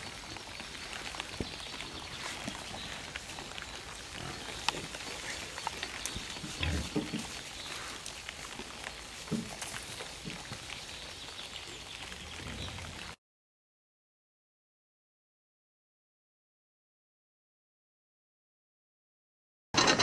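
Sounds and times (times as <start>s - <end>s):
crackling with small clicks: 0.6s - 6.8s
boars grunting: 2.7s - 8.0s.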